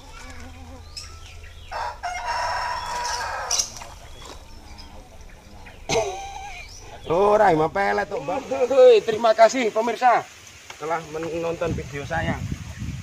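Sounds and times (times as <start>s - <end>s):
rooster crowing: 0.2s - 8.5s.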